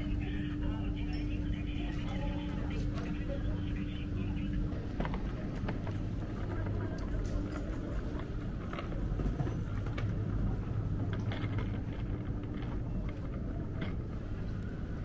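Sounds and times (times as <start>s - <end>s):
faint clicks and knocks: 5.0s - 14.8s.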